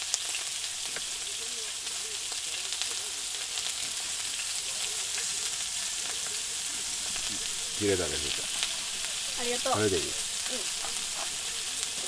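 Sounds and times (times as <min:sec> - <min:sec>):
pork sizzling on grill pan: 0:00.0 - 0:12.0.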